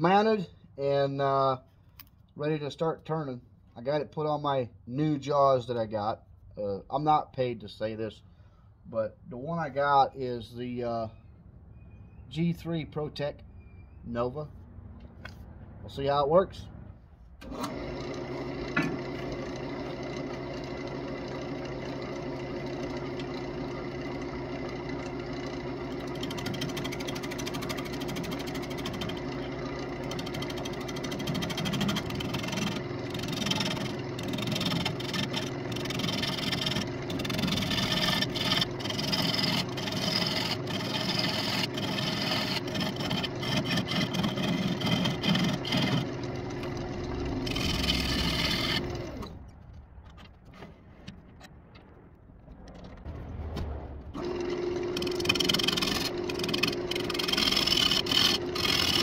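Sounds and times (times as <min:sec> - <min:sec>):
turning tool cutting wood: 0:17.4 - 0:49.4, 0:54.2 - 0:59.0
wood lathe motor humming: 0:17.4 - 0:49.4, 0:54.2 - 0:59.0.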